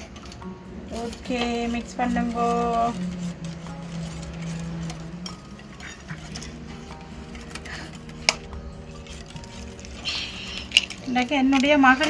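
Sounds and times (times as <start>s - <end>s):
wire whisk scraping a bowl: 0.0s - 12.0s
whisk wires clicking on bowl: 7.2s - 12.0s.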